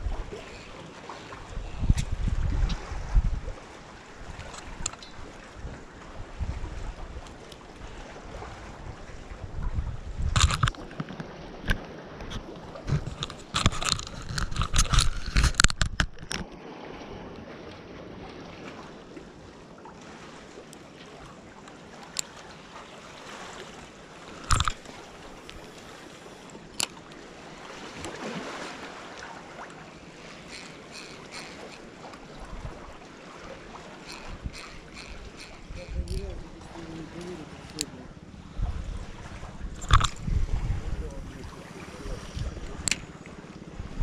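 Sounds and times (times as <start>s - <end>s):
wind on microphone: 0.0s - 16.4s, 30.2s - 33.0s, 33.6s - 44.0s
sea waves washing on shore: 0.0s - 44.0s.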